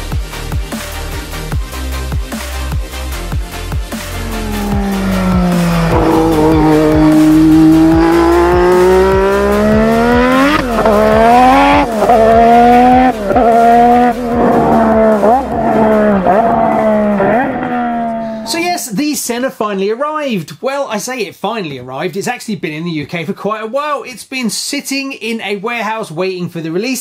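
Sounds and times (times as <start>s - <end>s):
racing car engine revving: 3.8s - 18.5s.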